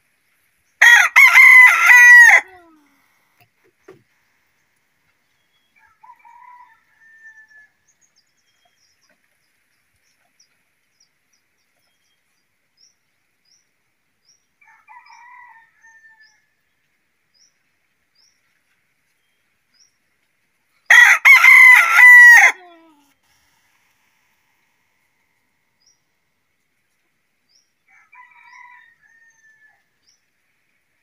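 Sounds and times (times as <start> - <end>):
rooster crowing: 0.8 - 2.6, 5.8 - 7.7, 14.6 - 16.3, 20.9 - 22.6, 27.9 - 29.8.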